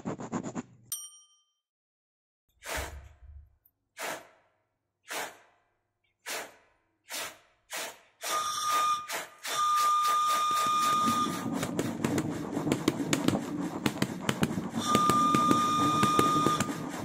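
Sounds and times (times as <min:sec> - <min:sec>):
rhythmic train chuffs: 0:07.7 - 0:17.0
high whistle-like tone: 0:08.2 - 0:11.6, 0:14.8 - 0:17.0
fast clatter: 0:10.6 - 0:17.0.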